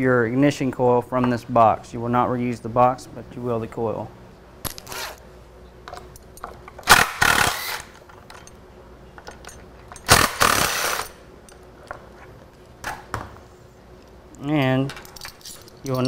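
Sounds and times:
cordless drill running: 0:06.9 - 0:07.9
light clicks of metal parts: 0:08.0 - 0:10.1, 0:13.9 - 0:16.0.

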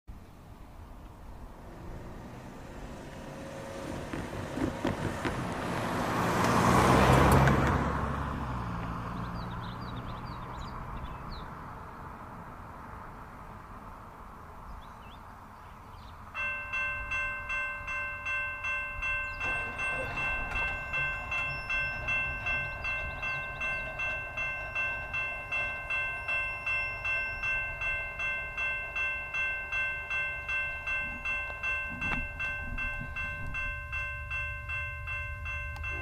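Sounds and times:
railroad crossing bell ringing: 0:01.6 - 0:07.6, 0:16.2 - 0:36.0
knock: 0:04.0 - 0:05.5.

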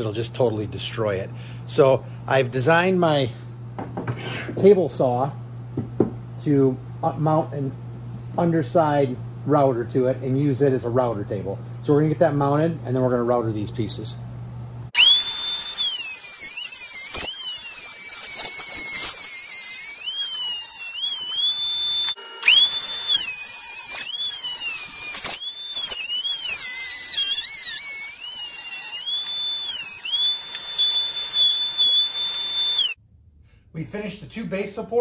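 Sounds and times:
router whining while cutting wood: 0:15.0 - 0:33.0.

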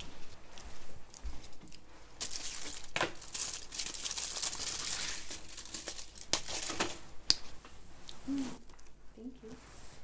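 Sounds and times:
crinkling and rustling: 0:00.0 - 0:07.1.

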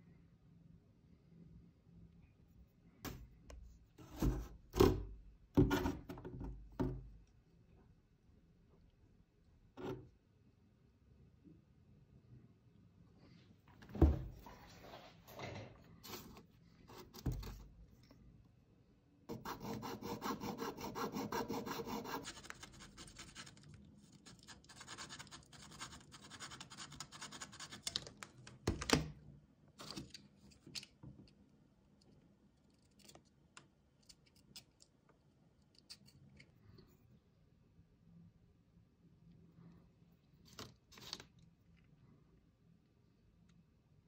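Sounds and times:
hacksaw cutting wood: 0:19.3 - 0:22.2.

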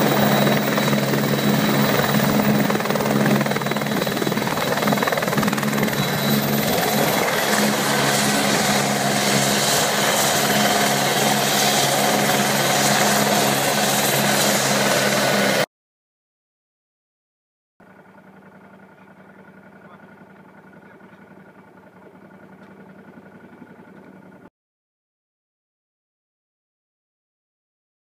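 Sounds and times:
high turbine whine: 0:00.0 - 0:15.6
helicopter rotor noise: 0:00.0 - 0:15.7, 0:17.8 - 0:24.5.

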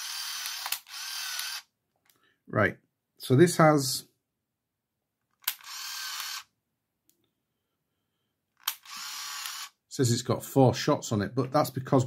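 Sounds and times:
camera shutter click: 0:00.0 - 0:01.6, 0:05.4 - 0:06.5, 0:08.6 - 0:09.7
camera motor whirring: 0:00.0 - 0:01.7, 0:05.4 - 0:06.5, 0:08.6 - 0:09.8.

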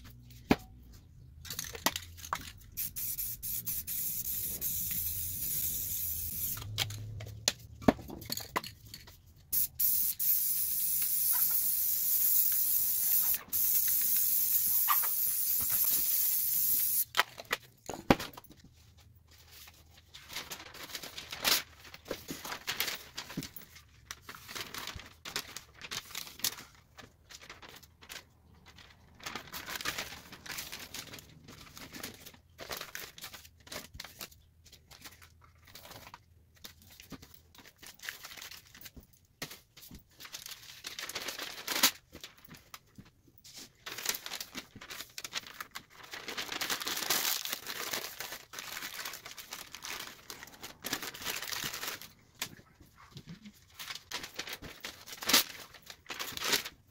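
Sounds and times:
crumpled sheet crinkling: 0:18.5 - 0:56.9.

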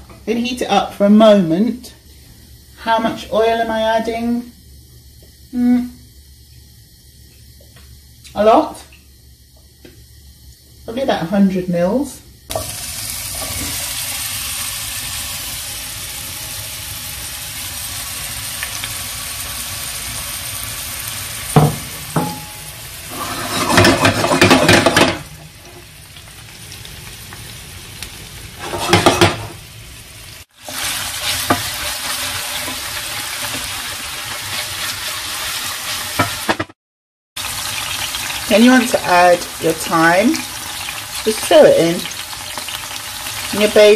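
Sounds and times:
oil sizzling in a frying pan: 0:00.0 - 0:36.8, 0:37.4 - 0:43.9
stirring in a pan: 0:22.2 - 0:25.8, 0:30.6 - 0:36.6.

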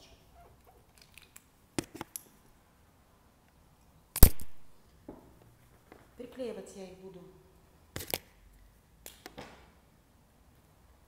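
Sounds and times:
sharp loud click: 0:04.2 - 0:04.6.

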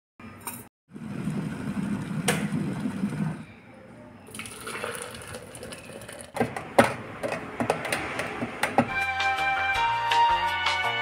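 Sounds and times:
electric kettle boiling: 0:00.9 - 0:03.4, 0:04.3 - 0:06.4
water being poured: 0:04.3 - 0:06.4.

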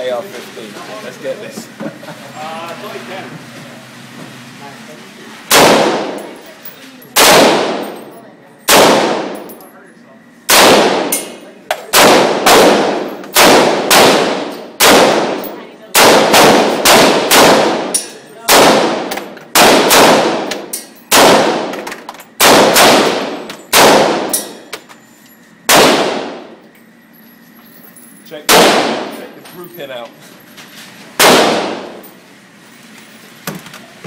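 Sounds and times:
rifle shots echoing indoors: 0:05.5 - 0:06.4, 0:07.2 - 0:09.6, 0:10.5 - 0:24.6, 0:25.6 - 0:26.6, 0:28.4 - 0:29.2, 0:31.2 - 0:32.1.

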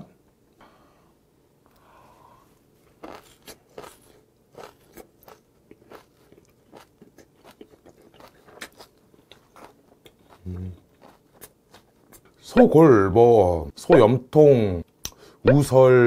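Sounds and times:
close-miked chewing with crunches: 0:02.8 - 0:12.4.

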